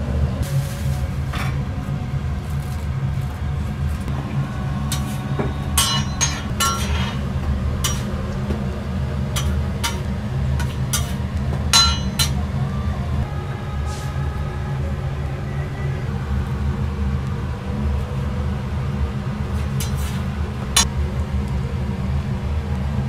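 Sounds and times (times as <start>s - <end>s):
steady low hum: 0.0s - 23.0s
metal spatula clinking on griddle: 5.8s - 7.2s, 7.8s - 8.1s, 11.8s - 12.4s.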